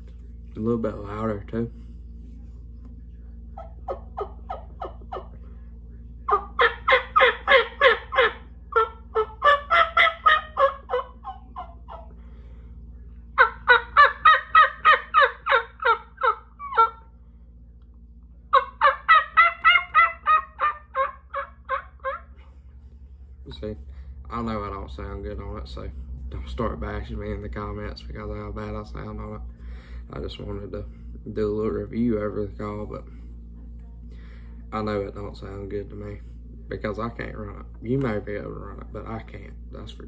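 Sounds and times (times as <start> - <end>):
turkey call yelps: 3.6 - 5.4, 6.3 - 12.2, 13.4 - 17.1, 18.5 - 22.4.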